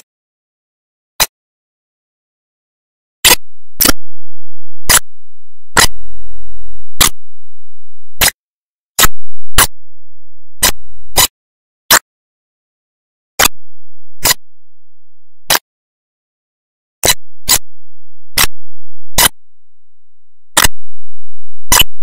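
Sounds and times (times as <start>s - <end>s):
faint low hum: 3.4s - 8.2s, 9.1s - 11.2s
sharp clicks: 7.0s - 7.3s, 9.0s - 9.8s, 10.6s - 11.3s, 20.6s - 21.0s, 21.7s - 22.0s.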